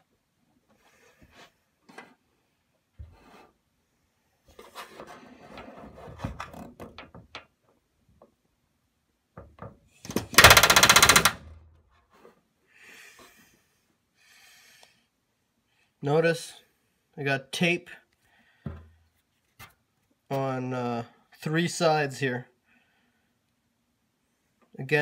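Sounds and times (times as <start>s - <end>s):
rivet gun rapid hammering: 10.1s - 11.5s.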